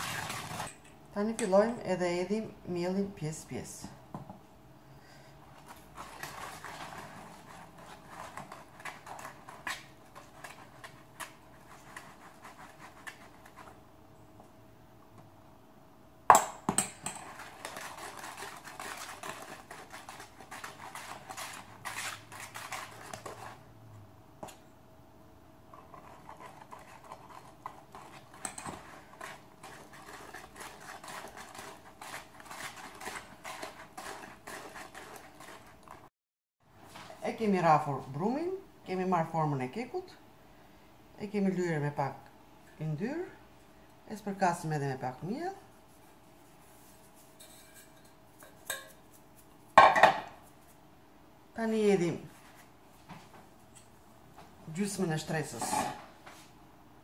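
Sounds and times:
wire whisk beating batter: 0.0 - 0.8, 5.6 - 13.8, 16.9 - 23.7, 25.7 - 36.1, 46.6 - 49.5.

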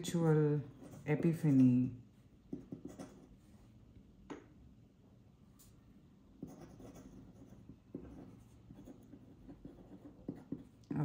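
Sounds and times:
pen nib scratching on paper: 2.5 - 3.4, 6.4 - 10.8.

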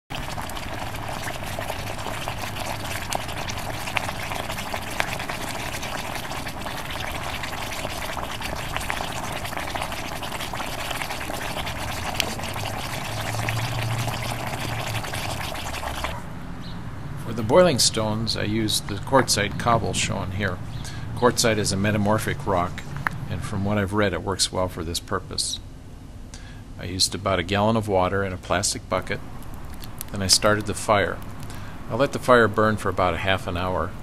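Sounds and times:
water boiling hard in bucket: 0.0 - 16.2, 29.0 - 34.0.

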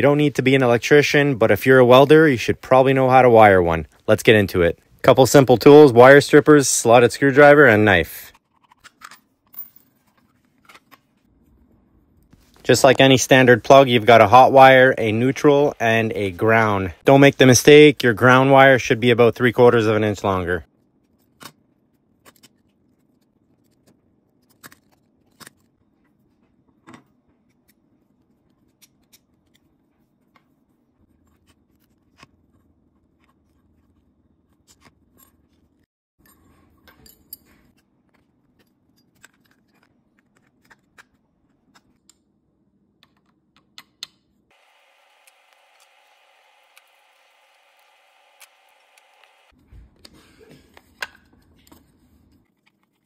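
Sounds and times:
small screws and terminals clicking: 43.0 - 49.5
wire cutters on copper wire: 44.6 - 49.5.

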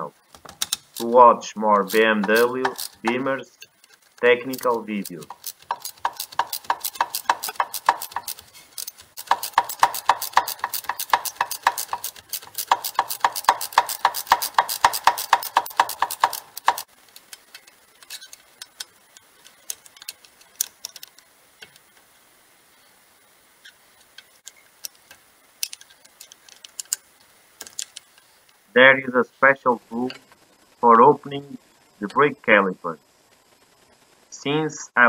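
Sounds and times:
ratchet wrench clicking: 0.6 - 1.1, 1.8 - 21.8, 24.1 - 27.0.

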